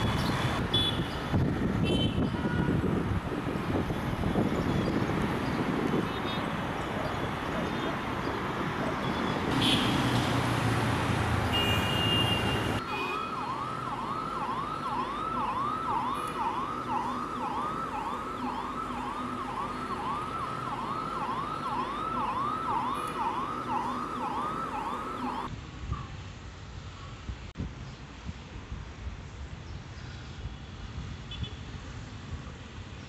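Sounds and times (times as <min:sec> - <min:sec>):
loud street noise: 0:00.0 - 0:26.4
electronic siren yelping: 0:12.8 - 0:25.5.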